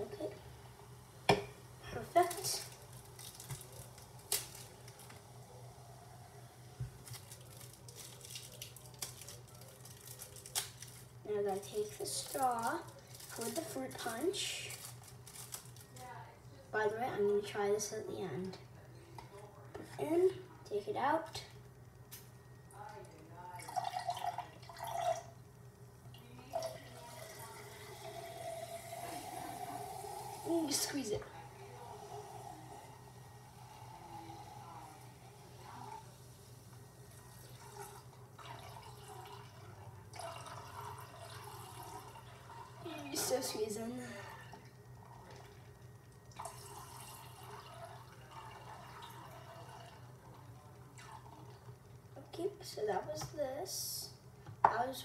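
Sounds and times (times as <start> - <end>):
juice trickling into a glass: 2.2 - 5.2, 5.8 - 15.8, 23.5 - 25.4, 26.1 - 52.0.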